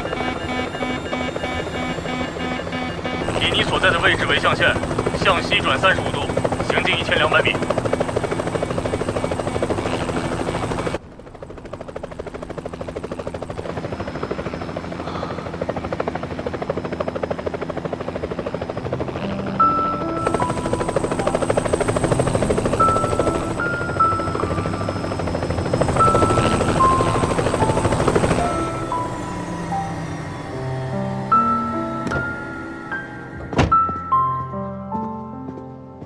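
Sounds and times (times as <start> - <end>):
helicopter rotor beating: 0.0 - 33.5
turbine whine: 0.0 - 34.1
gentle music with held notes: 26.1 - 36.0.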